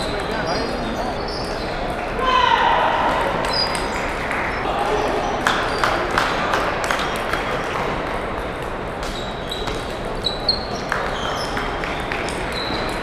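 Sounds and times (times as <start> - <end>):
murmur of a large hall: 0.0 - 13.0
table tennis balls clicking: 6.8 - 13.0.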